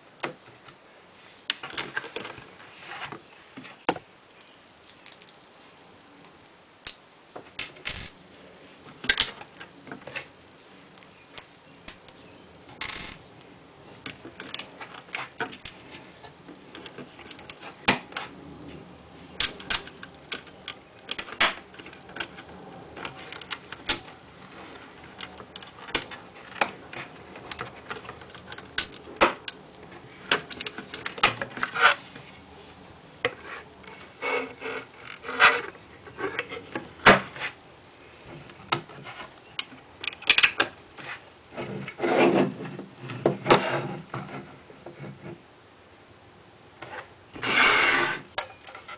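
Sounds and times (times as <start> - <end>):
plastic bricks clicking: 7.6 - 8.2, 19.4 - 29.6.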